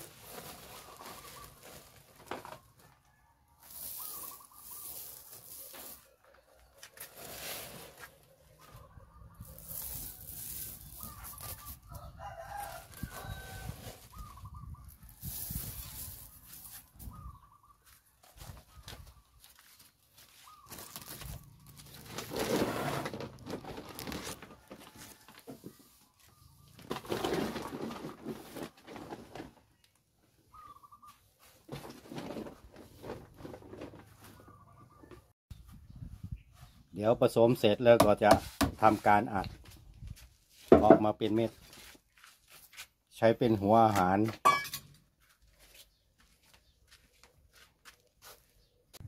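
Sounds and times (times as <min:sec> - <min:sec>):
rustling noise: 0:00.0 - 0:02.6, 0:03.6 - 0:06.2, 0:06.8 - 0:17.2, 0:17.8 - 0:26.2
rooster crowing: 0:11.9 - 0:13.9.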